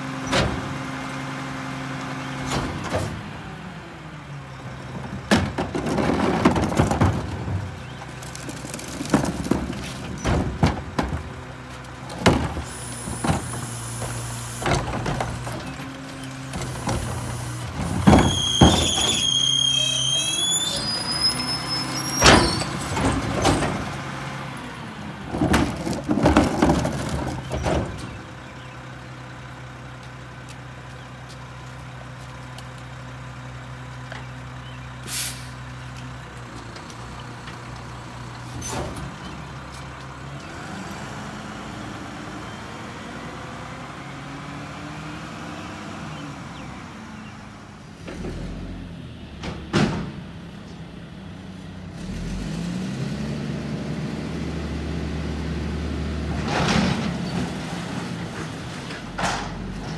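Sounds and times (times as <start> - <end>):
air brakes hissing: 35.0 - 35.6.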